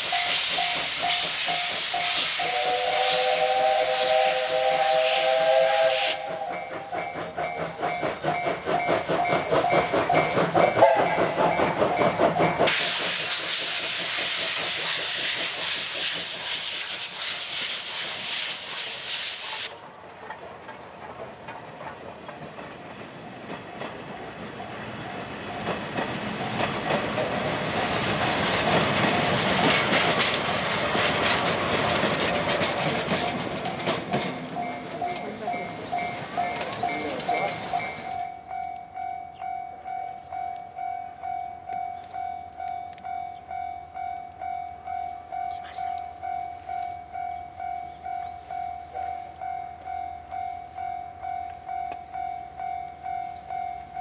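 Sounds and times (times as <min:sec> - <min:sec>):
steam hissing: 0:00.0 - 0:19.8
steam locomotive chuffing: 0:00.0 - 0:41.3
train clatter: 0:00.0 - 0:45.5
steam whistle: 0:00.1 - 0:06.8, 0:10.6 - 0:11.6.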